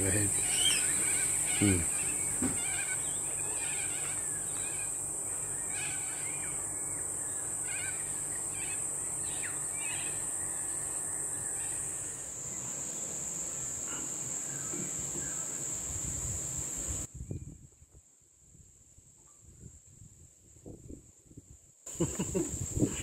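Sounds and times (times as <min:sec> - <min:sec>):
insects droning: 0:00.0 - 0:17.5, 0:18.1 - 0:23.0
bird chirps: 0:00.1 - 0:12.6.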